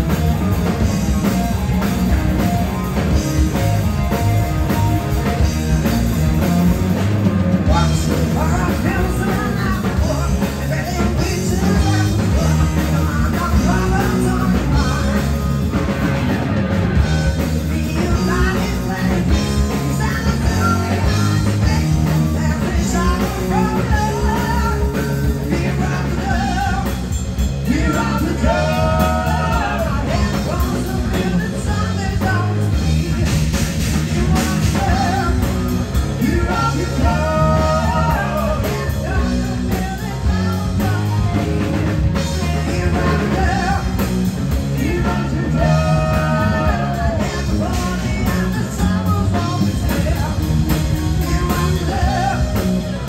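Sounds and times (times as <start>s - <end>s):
live rock band playing: 0.0s - 53.0s
man singing into microphone: 7.7s - 15.5s, 17.6s - 27.0s, 27.6s - 41.5s, 42.3s - 44.1s, 44.7s - 53.0s.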